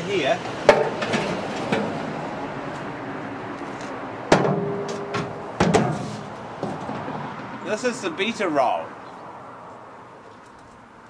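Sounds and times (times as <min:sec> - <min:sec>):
steady background noise: 0:00.0 - 0:11.0
metal knock: 0:00.7 - 0:01.9, 0:04.3 - 0:07.2
metal cover clanking: 0:04.3 - 0:06.2.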